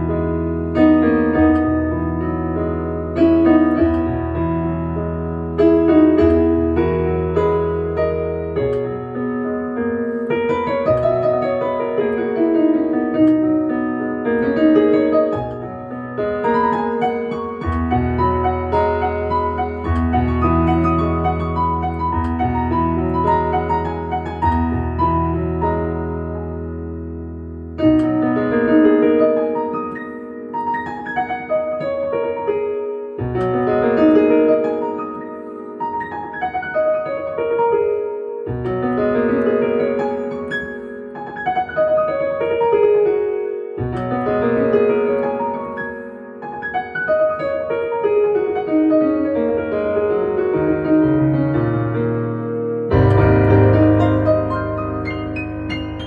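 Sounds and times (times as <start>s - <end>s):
piano playing: 0.0s - 56.0s.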